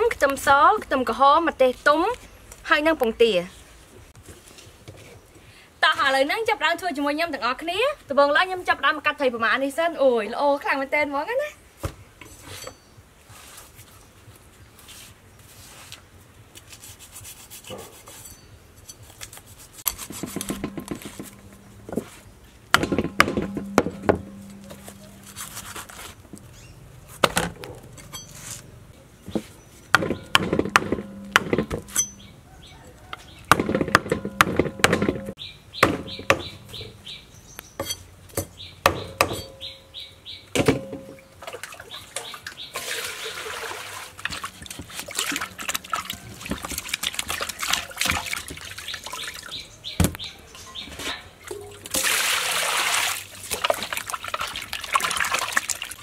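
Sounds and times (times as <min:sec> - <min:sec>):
cleaver scraping fish scales: 0:16.6 - 0:22.3, 0:24.4 - 0:26.6
blade knocking on wooden board: 0:20.2 - 0:21.4
water splashing in steel bowl: 0:41.4 - 0:49.6, 0:51.5 - 0:56.0.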